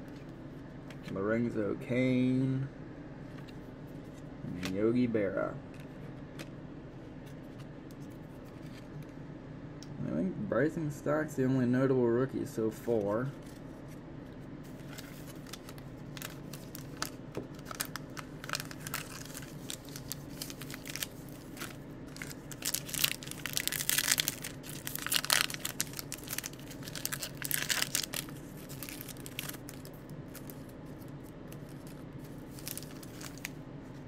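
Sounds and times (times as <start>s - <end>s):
foil wrapper tearing and crinkling: 14.8s - 33.6s.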